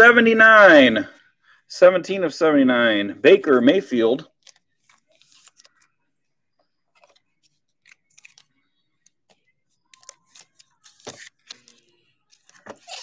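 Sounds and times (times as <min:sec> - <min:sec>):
cards being handled: 0:04.3 - 0:06.0, 0:06.6 - 0:13.0.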